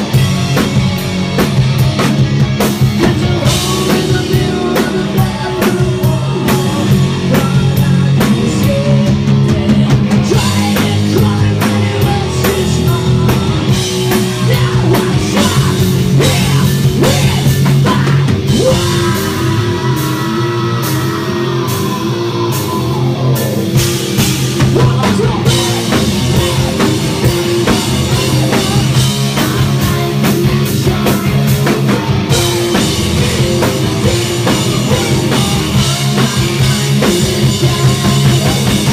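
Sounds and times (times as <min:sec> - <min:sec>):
bass guitar: 0:00.0 - 0:38.9
drum kit: 0:00.0 - 0:38.9
electric guitars: 0:00.0 - 0:38.9
person singing lead vocals: 0:02.8 - 0:38.9.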